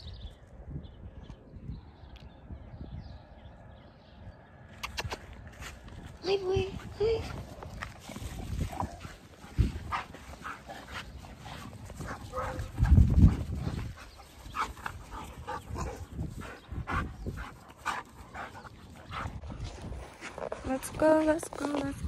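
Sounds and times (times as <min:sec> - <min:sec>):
dog noises: 0:06.7 - 0:19.6.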